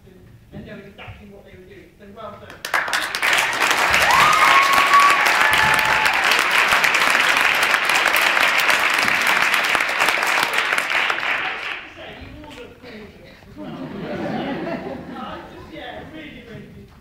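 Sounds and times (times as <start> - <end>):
audience applauding: 2.6 - 12.1.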